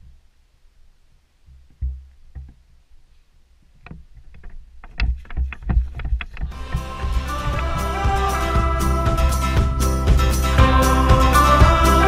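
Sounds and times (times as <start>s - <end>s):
footsteps and camera jostling thuds: 3.8s - 7.8s.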